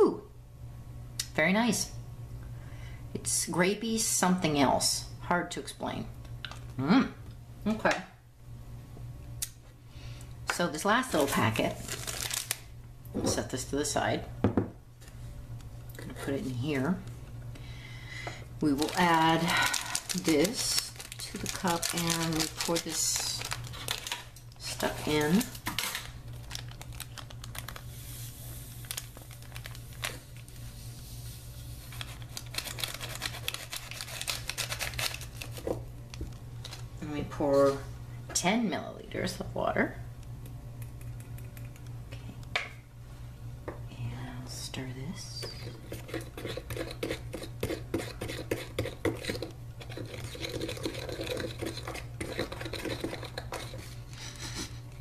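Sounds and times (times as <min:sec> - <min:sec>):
steady low hum: 0:00.0 - 0:55.0
plastic sachet crinkling: 0:11.1 - 0:12.7, 0:18.7 - 0:30.6, 0:31.9 - 0:35.7
spoon scraping plastic cup: 0:45.4 - 0:54.7.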